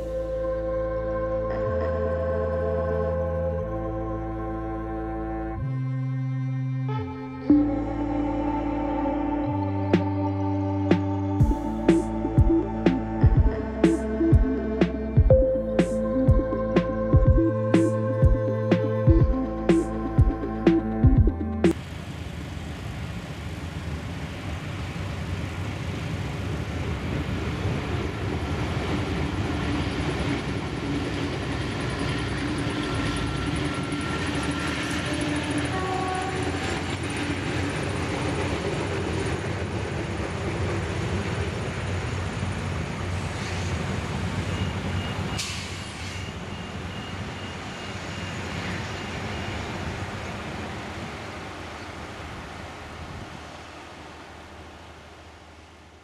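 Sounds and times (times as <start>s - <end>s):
diesel railcar engine rumble: 3.6s - 54.2s
train wheels on track: 21.7s - 52.7s.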